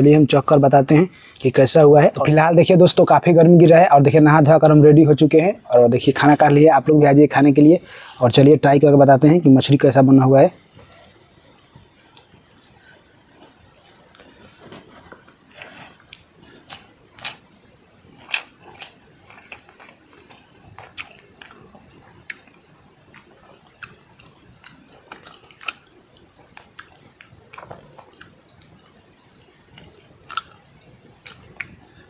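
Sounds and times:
person chewing: 0:11.9 - 0:32.0.

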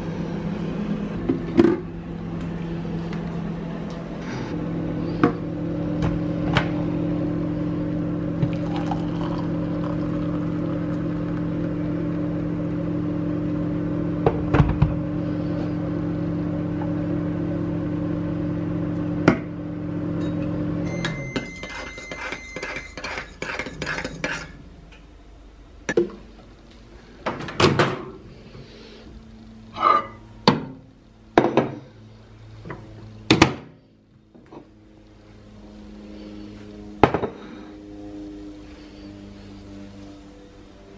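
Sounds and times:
microwave oven humming: 0:00.0 - 0:40.9
microwave beeps: 0:20.2 - 0:23.0.

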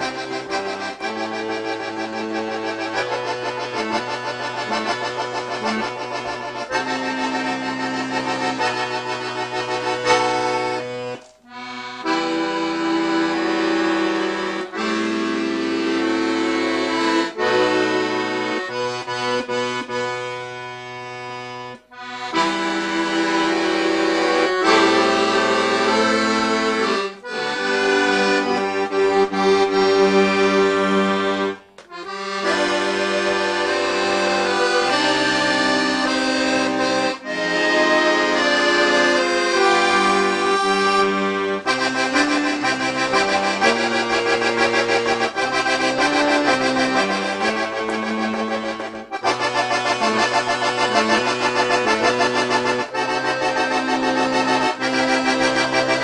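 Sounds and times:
instrumental music of held chords: 0:00.0 - 0:56.0.

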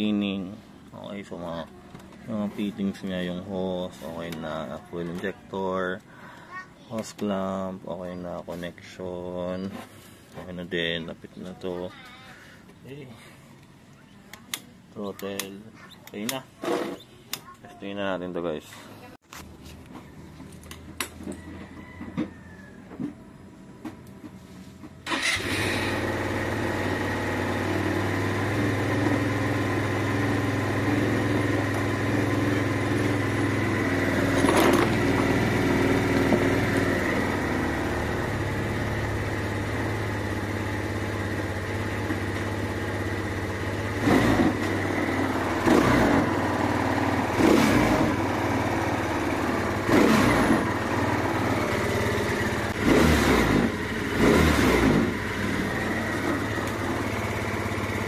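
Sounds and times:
scooter engine idling and revving: 0:00.0 - 0:12.3, 0:19.5 - 0:58.0.

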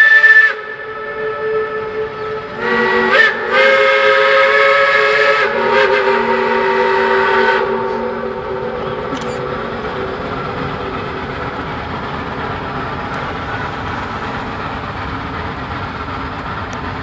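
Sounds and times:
steam locomotive whistle: 0:00.0 - 0:11.1.

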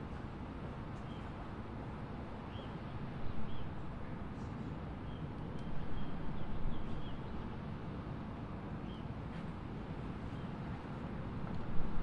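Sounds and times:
wind rumble on microphone: 0:05.8 - 0:12.0.

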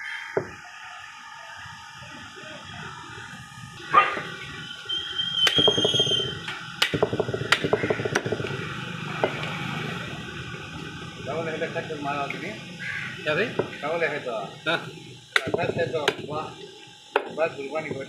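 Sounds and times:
cleaver chopping on wooden block: 0:06.8 - 0:08.5, 0:15.4 - 0:16.2.

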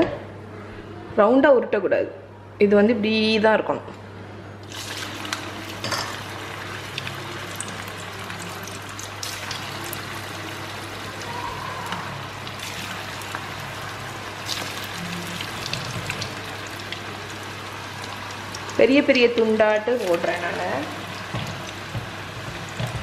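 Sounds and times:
oil crackling and popping: 0:04.6 - 0:23.0
batter sizzling in hot oil: 0:04.7 - 0:23.0.

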